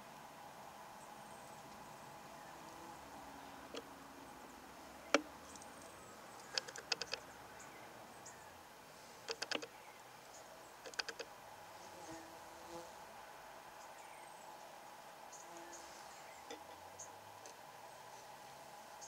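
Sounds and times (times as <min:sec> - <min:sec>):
sharp clicks: 0:06.4 - 0:07.2, 0:09.3 - 0:09.7, 0:10.8 - 0:11.3.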